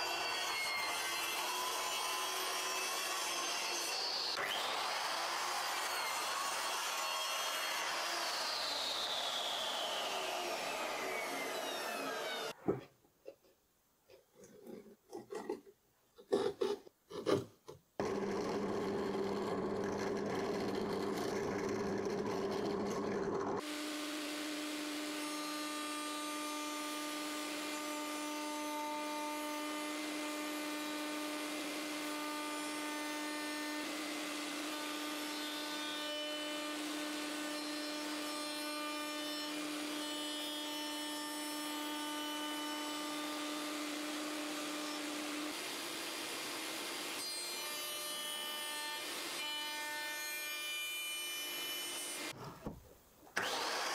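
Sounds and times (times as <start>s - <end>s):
router motor cutting plywood: 0.0s - 12.6s, 18.0s - 52.4s, 53.4s - 53.9s
knocks and scrapes: 12.6s - 23.6s.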